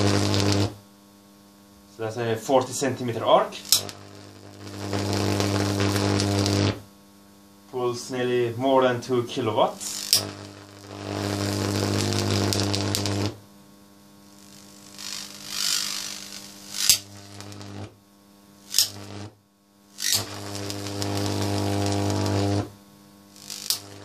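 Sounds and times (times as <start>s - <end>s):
electric arc buzzing: 0.0s - 24.0s
low mains hum: 0.0s - 24.0s
arc striking snaps: 3.6s - 6.8s, 9.8s - 13.4s, 16.7s - 17.9s, 18.7s - 19.2s, 23.4s - 24.0s.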